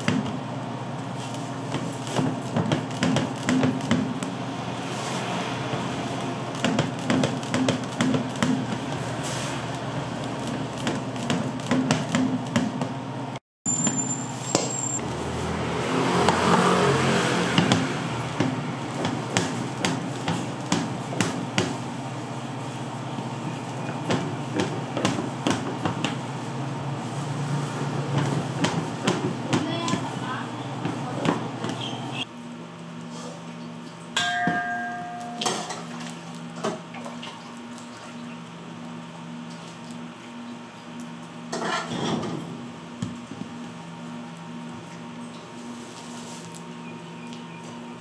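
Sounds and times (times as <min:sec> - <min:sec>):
vehicle passing: 0:04.4 - 0:06.5, 0:15.0 - 0:19.8.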